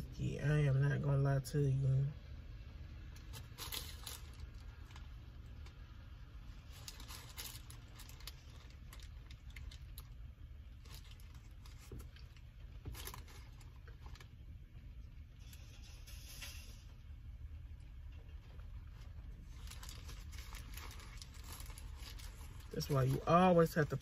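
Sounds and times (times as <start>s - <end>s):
paper wrapper crinkling: 3.1s - 14.4s, 18.5s - 24.0s.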